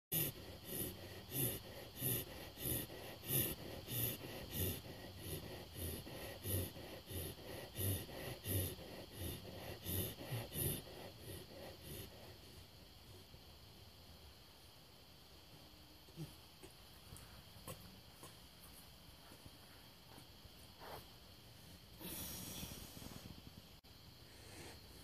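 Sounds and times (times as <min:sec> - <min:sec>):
dog breathing rapidly: 0:00.1 - 0:12.7.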